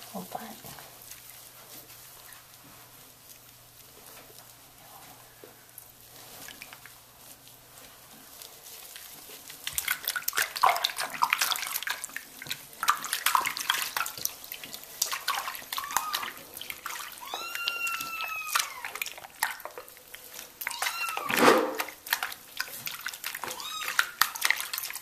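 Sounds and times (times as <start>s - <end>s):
shallow water splashing: 8.9s - 25.0s.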